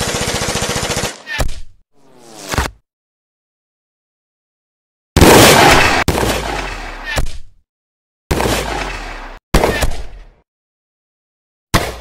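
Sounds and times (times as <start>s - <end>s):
rifle gunshots: 5.2s - 6.9s, 8.3s - 10.1s.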